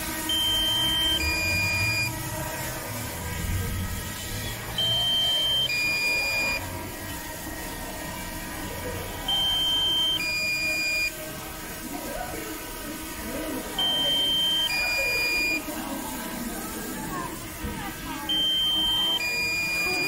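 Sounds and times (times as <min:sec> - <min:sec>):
two-note warning alarm: 0:00.0 - 0:11.5, 0:13.5 - 0:15.8, 0:18.1 - 0:20.0
steady background hum: 0:00.0 - 0:20.0.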